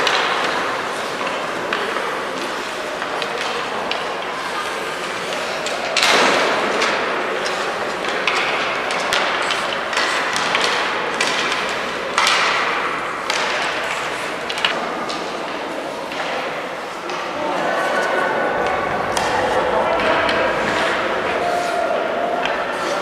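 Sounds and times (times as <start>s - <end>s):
hockey sticks and puck clacking: 0.0s - 23.0s.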